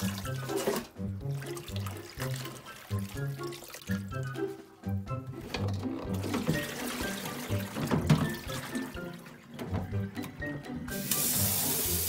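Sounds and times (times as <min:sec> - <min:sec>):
hand stirring water in basin: 0:00.0 - 0:04.6
background music: 0:00.0 - 0:12.0.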